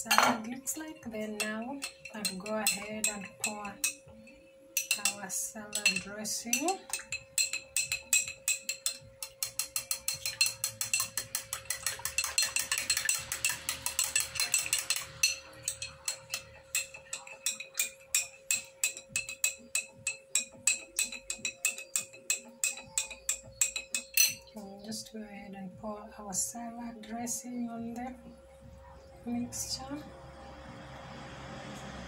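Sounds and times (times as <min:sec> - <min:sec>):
spoon clinking against glass: 0:00.0 - 0:00.4, 0:01.4 - 0:24.5
steady hum: 0:24.5 - 0:32.0.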